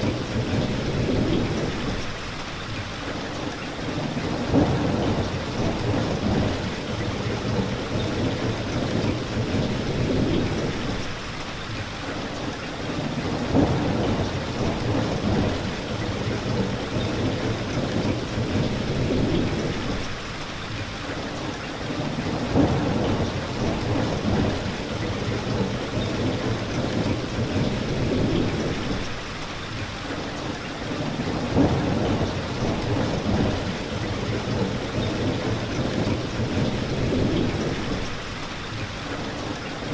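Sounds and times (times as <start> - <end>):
rolling thunder: 0.0 - 2.1, 3.8 - 11.2, 12.8 - 20.2, 21.8 - 29.3, 30.8 - 38.4
steady rain: 0.0 - 39.9.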